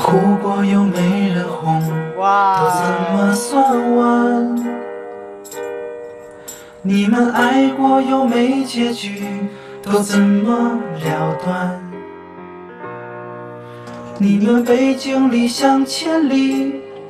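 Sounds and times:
man singing into a microphone: 0.0 - 4.8, 6.8 - 12.0, 14.2 - 16.8
instrumental backing music: 0.0 - 17.0.

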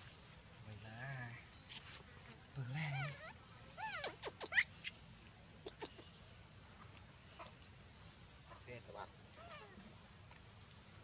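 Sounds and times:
high insect drone: 0.0 - 11.0
monkey squealing calls: 2.9 - 4.9.

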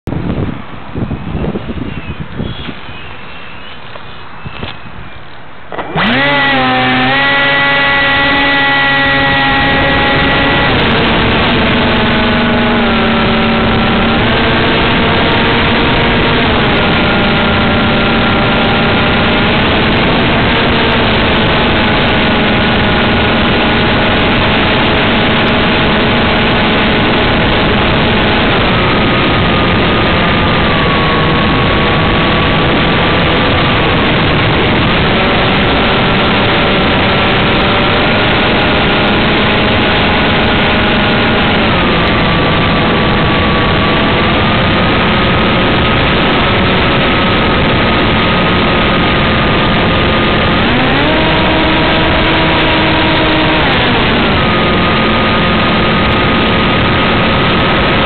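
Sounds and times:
air and propeller rushing: 5.6 - 58.0
model plane motor whine: 5.7 - 58.0.

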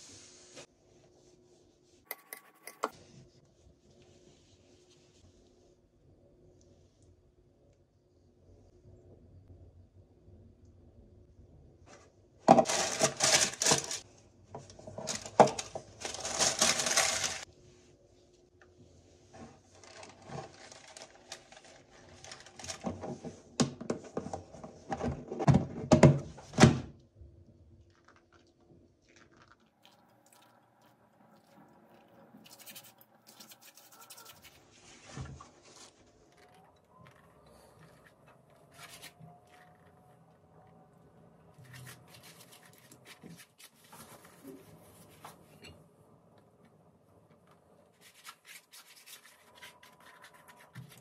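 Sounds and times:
loud rustling and crinkling: 12.5 - 14.1, 14.8 - 17.5, 19.4 - 23.5.

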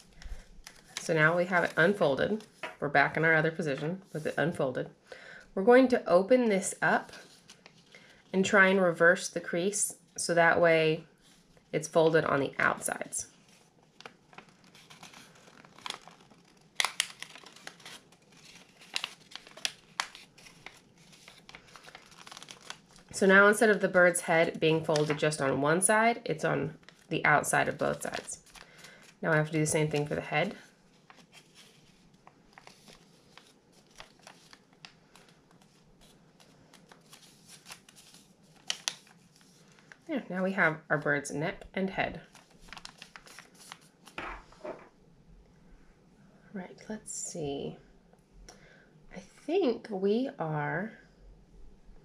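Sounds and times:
paper crinkling and crackling: 0.0 - 2.8, 7.0 - 8.3, 13.3 - 23.2, 24.8 - 25.5, 26.8 - 40.1, 42.1 - 44.6.

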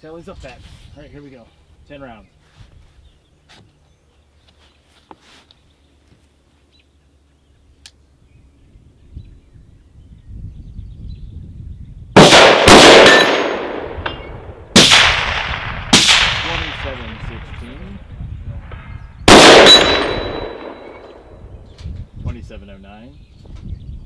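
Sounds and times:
rifle shots echoing: 12.2 - 18.0, 19.2 - 21.4.

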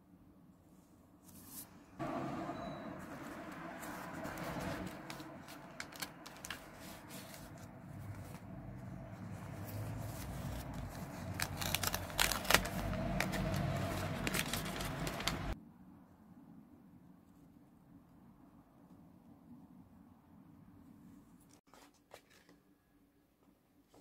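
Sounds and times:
paper rustling: 3.0 - 15.6.

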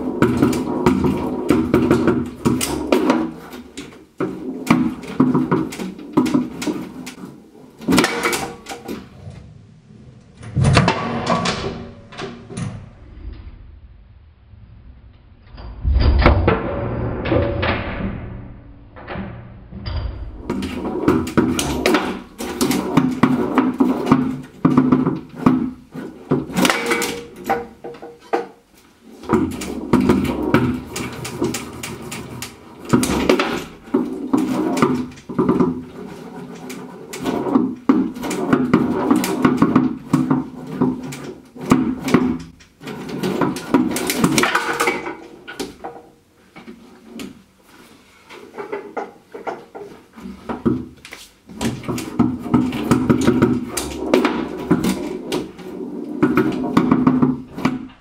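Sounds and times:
foosball clacks and knocks: 0.0 - 9.2, 20.2 - 47.5, 48.3 - 58.0
steel rods sliding and rattling: 0.0 - 9.5, 15.6 - 58.0.

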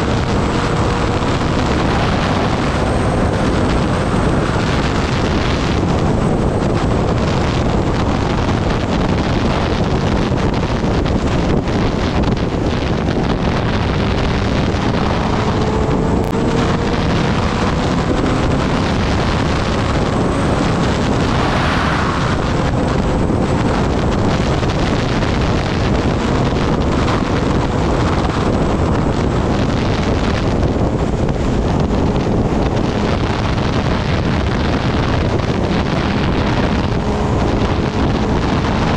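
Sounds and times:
wind rush on microphone: 0.0 - 38.9.

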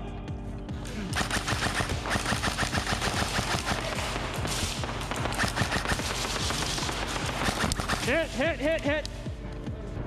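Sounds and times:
airsoft rifles firing full auto: 1.1 - 8.4.

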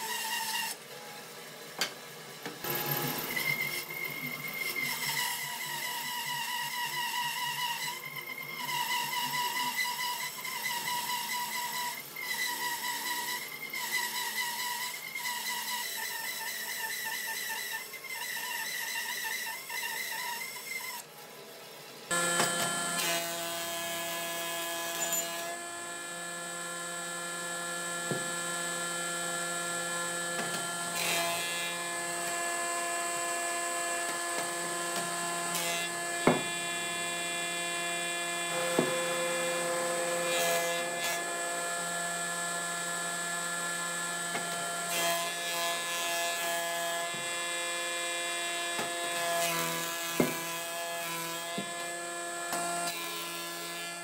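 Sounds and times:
planer cutting wood: 0.0 - 21.1, 22.1 - 54.0.

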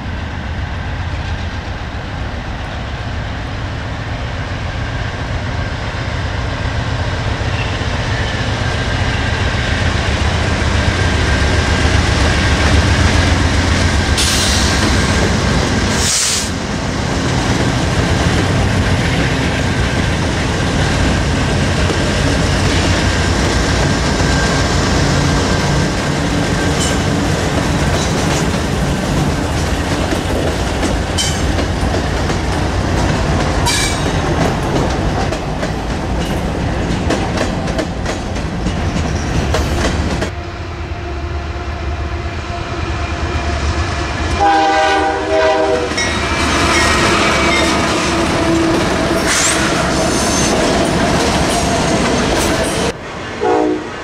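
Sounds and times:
train wheels clattering: 17.2 - 40.3
locomotive horn: 40.3 - 49.5, 53.4 - 54.0.

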